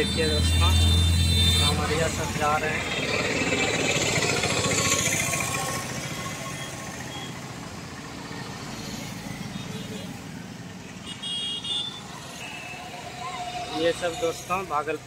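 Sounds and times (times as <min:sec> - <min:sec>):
distant motorcycles passing: 0:00.0 - 0:11.0
auto-rickshaw passing by: 0:00.0 - 0:15.0.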